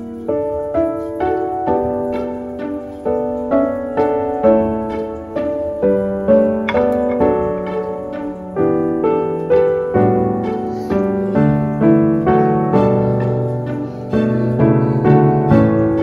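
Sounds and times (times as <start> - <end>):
gentle piano melody: 0.0 - 16.0.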